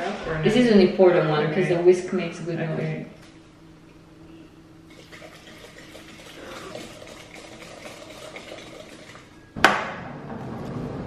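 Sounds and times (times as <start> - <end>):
whisk beating batter in glass bowl: 4.9 - 9.4.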